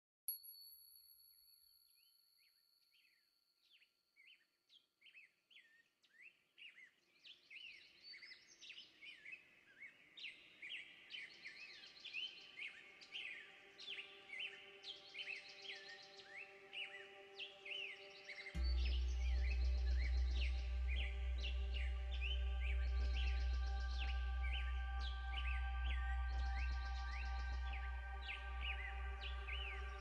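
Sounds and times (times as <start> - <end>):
bird chirps: 2.0 - 30.0.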